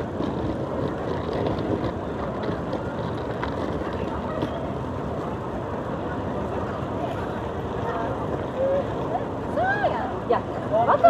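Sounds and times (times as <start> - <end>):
suitcase wheels rolling on paving: 0.0 - 9.6.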